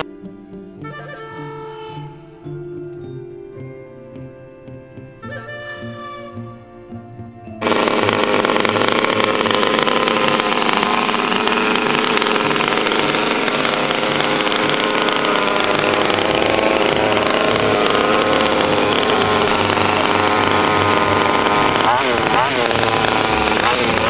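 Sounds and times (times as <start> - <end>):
two-stroke engine idling: 0.0 - 2.0, 7.6 - 24.0.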